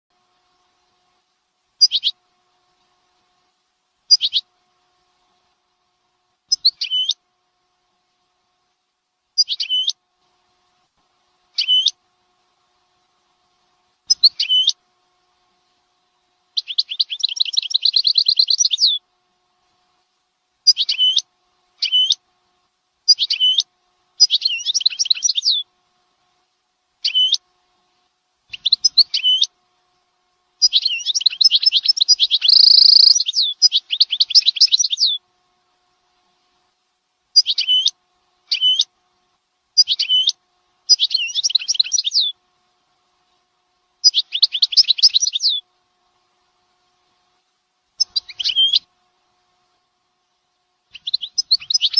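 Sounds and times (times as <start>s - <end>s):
small songbird chirping and trilling: 1.8s - 2.2s, 4.1s - 4.4s, 6.5s - 7.2s, 9.4s - 10.0s, 11.5s - 12.0s, 14.1s - 14.8s, 16.6s - 19.0s, 20.7s - 21.2s, 21.8s - 22.2s, 23.1s - 25.7s, 27.0s - 27.4s, 28.5s - 29.5s, 30.6s - 35.2s, 37.4s - 38.9s, 39.8s - 42.4s, 44.0s - 45.6s, 48.0s - 48.9s, 50.9s - 51.9s.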